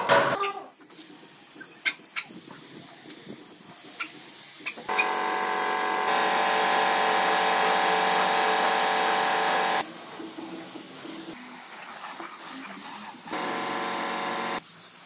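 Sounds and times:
paint spray gun hissing: 3.8s - 9.8s, 13.3s - 15.0s.

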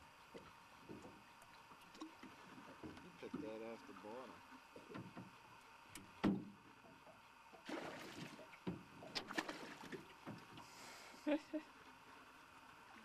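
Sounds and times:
knock on aluminium boat: 6.2s - 6.6s.

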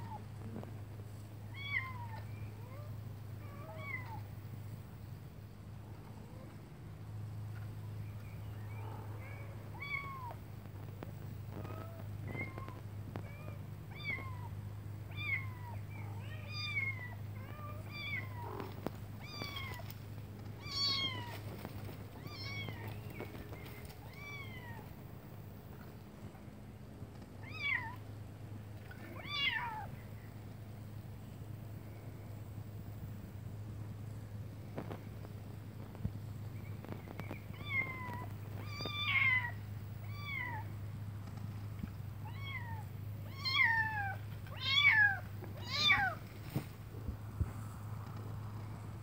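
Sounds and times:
kitten meowing: 20.6s - 21.4s, 37.5s - 40.7s, 42.2s - 46.2s.

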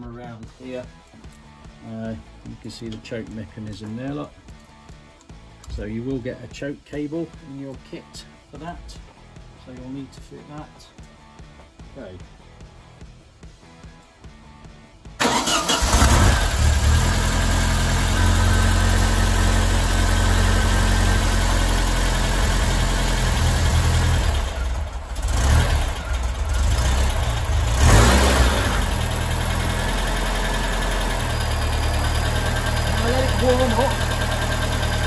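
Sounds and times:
car engine revving and idling: 15.2s - 35.0s.

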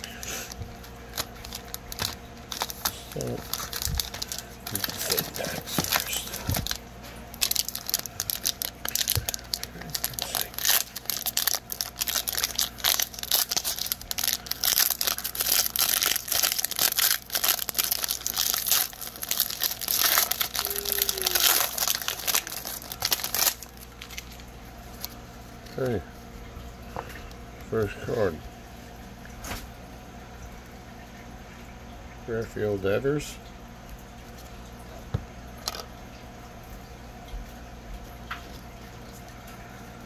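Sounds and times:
foil wrappers crinkling and tearing: 0.0s - 26.0s.

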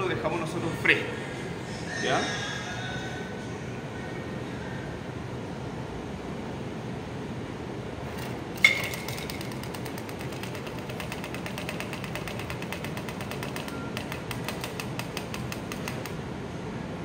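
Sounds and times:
strainer ticks and rattles: 8.1s - 16.2s.

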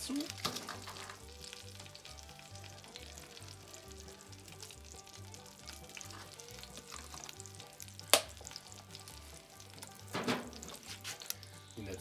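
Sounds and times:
background music with bass line: 0.0s - 12.0s
hot fat crackling and sizzling: 0.0s - 12.0s.

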